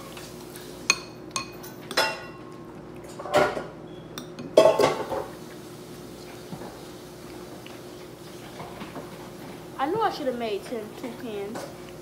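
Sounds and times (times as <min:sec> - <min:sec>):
dishes clattering: 0:00.9 - 0:02.4, 0:03.1 - 0:05.4
dishes and utensils clinking: 0:00.9 - 0:05.4.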